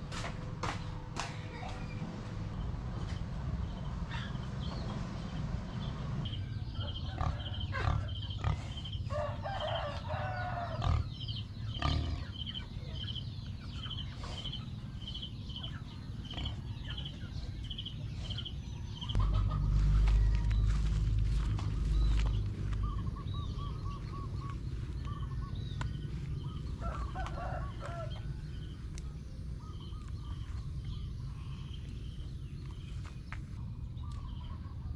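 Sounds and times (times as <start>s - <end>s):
birds chirping: 0.0s - 34.9s
loud low rumble: 1.6s - 9.0s, 19.1s - 33.0s
rooster crowing: 9.1s - 11.0s, 26.8s - 28.6s
chickens clucking: 19.1s - 28.2s.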